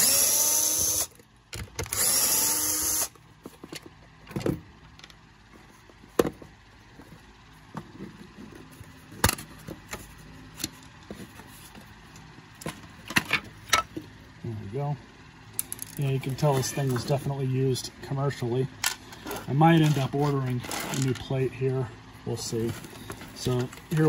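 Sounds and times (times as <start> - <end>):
cordless drill motor whining: 0.0 - 1.2, 1.8 - 3.2.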